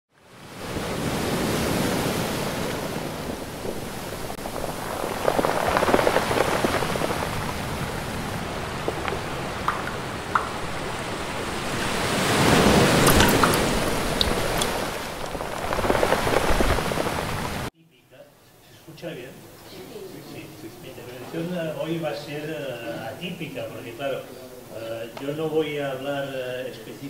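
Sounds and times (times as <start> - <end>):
sea waves washing in: 0.1 - 17.7
water splashes: 0.2 - 17.7.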